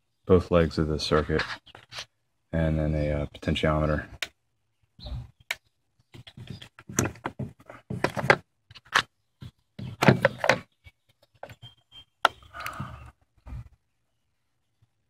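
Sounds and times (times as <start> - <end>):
plastic clicks and knocks: 5.5 - 9.1, 9.8 - 10.7.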